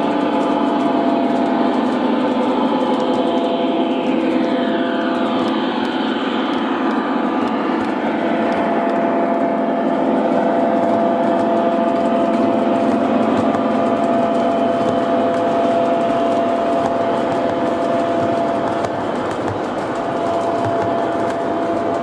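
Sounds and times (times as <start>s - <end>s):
model train rolling on track: 0.0s - 22.0s
wheels clicking over rail joints: 10.7s - 22.0s.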